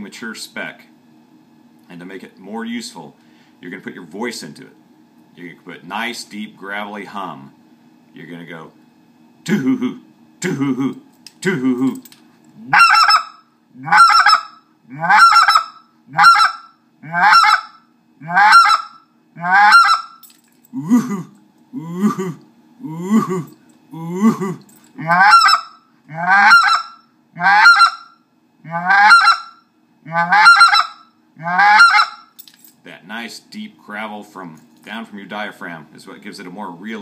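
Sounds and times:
goose call two-note honks: 12.7s - 14.4s, 15.0s - 17.6s, 18.2s - 20.1s, 25.0s - 28.0s, 28.7s - 29.5s, 30.1s - 32.2s.

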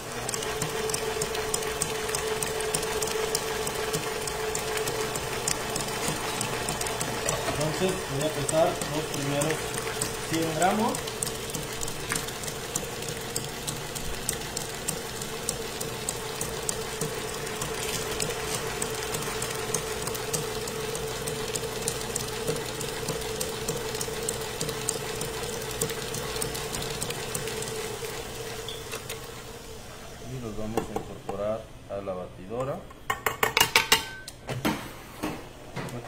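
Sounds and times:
stand mixer motor humming: 0.0s - 30.6s
beater clicking rapidly: 0.3s - 28.3s.

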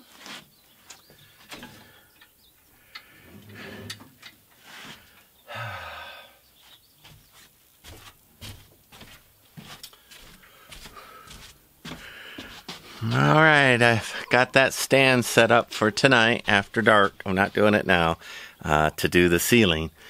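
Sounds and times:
grating noise and thump: 3.2s - 5.0s.

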